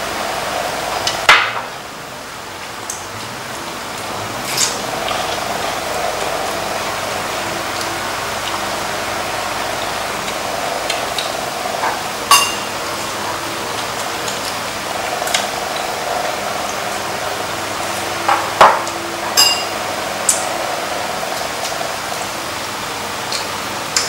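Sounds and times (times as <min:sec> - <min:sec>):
electric fan whirring: 0:00.0 - 0:24.0
utensils clinking against bowls: 0:11.8 - 0:12.8, 0:18.3 - 0:20.4.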